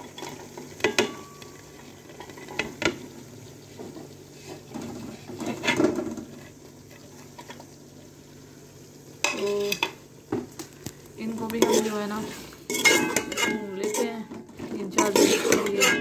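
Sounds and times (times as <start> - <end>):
plate and spoon clinking on pot: 0.8 - 1.5, 12.7 - 14.1, 15.0 - 16.0
peas pattering into pot: 9.2 - 14.0.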